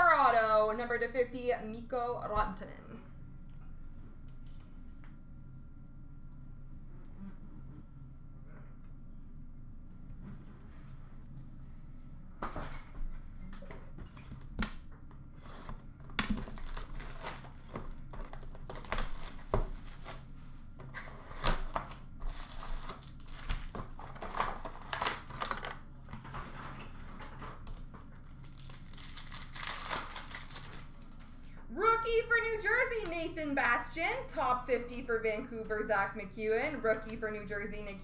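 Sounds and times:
wrappers crinkling and tearing: 15.6s - 20.3s, 21.0s - 25.8s, 28.2s - 31.2s.

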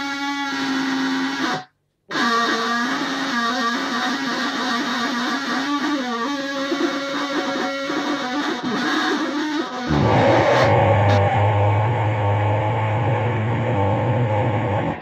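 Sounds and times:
loudspeaker buzzing tone: 9.9s - 15.0s.

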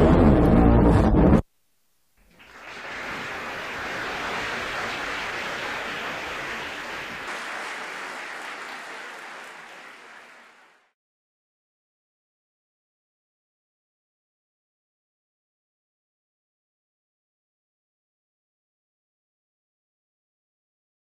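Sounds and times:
music: 0.0s - 1.4s
audience applauding: 2.3s - 11.0s.

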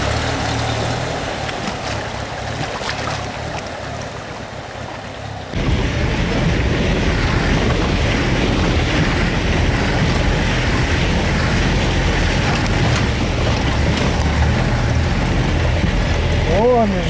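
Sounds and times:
water rushing and splashing: 0.0s - 17.0s
vehicle engine running: 5.6s - 17.0s.

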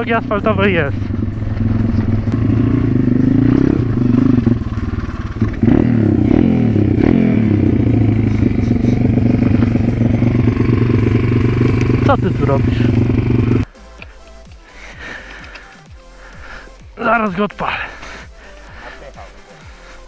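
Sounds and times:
pit bike engine revving: 0.0s - 13.7s.

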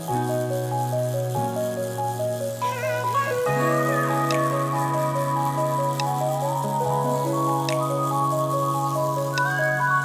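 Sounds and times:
background music of held notes: 2.6s - 10.0s.

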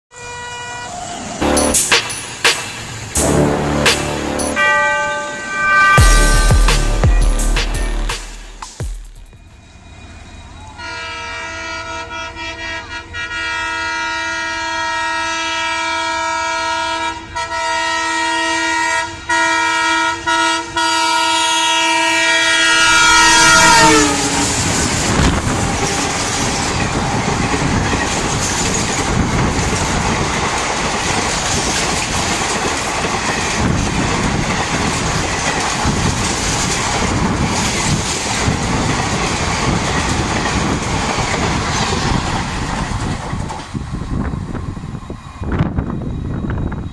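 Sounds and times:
locomotive horn: 0.1s - 1.9s, 3.2s - 8.6s, 10.8s - 26.4s
train wheel clatter: 24.3s - 44.6s.

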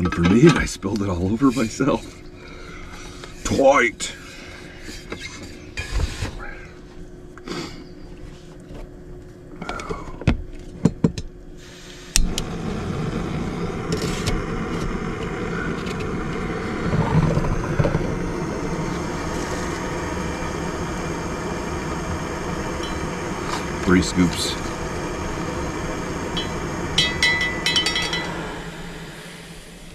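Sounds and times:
gas burner hissing: 0.0s - 6.8s, 11.5s - 29.9s
gas burner igniter click: 12.1s - 12.5s.

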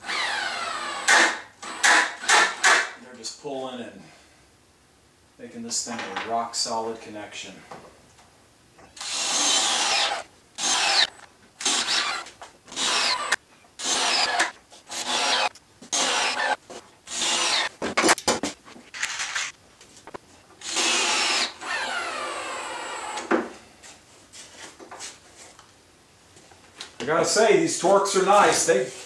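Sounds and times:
cordless drill driving screws: 0.0s - 2.9s, 9.0s - 17.7s, 20.6s - 23.3s.

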